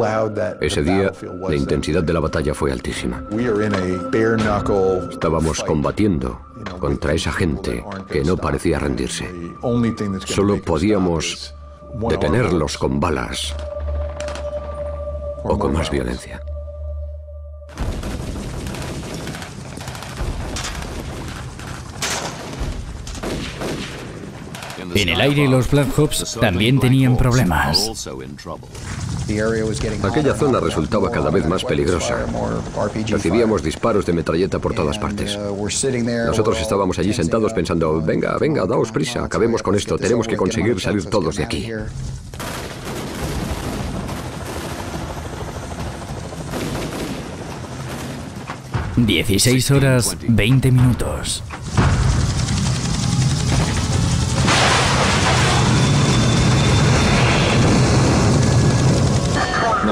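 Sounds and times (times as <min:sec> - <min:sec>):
scattered gunshots: 0:17.8 - 0:25.5, 0:42.3 - 0:48.8, 0:51.6 - 0:59.6
rifle gunfire: 0:18.1 - 0:24.8
helicopter rotor noise: 0:44.2 - 0:48.8, 0:51.6 - 0:54.5, 0:55.1 - 0:59.9.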